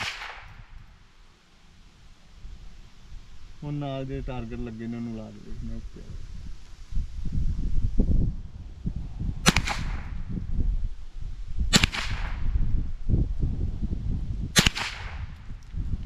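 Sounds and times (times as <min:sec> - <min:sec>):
rifle shots: 0:00.0 - 0:00.6, 0:09.4 - 0:10.1, 0:11.7 - 0:12.4, 0:14.6 - 0:15.3.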